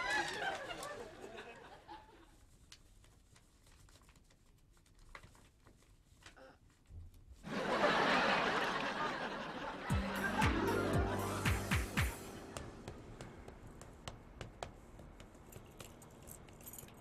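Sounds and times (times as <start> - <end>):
notepad paper rustling: 2.4 - 6.9
audience laughter: 7.4 - 12.6.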